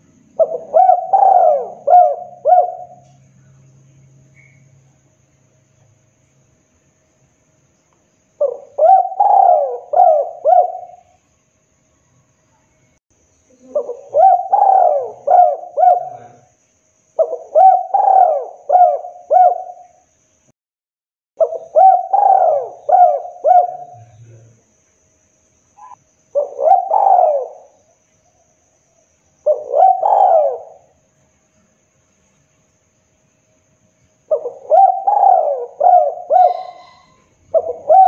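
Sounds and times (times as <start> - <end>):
dove cooing: 0.0 - 3.2, 8.4 - 11.2, 13.5 - 16.5, 17.2 - 19.9, 21.4 - 24.2, 25.8 - 27.8, 29.4 - 31.0, 34.3 - 38.0.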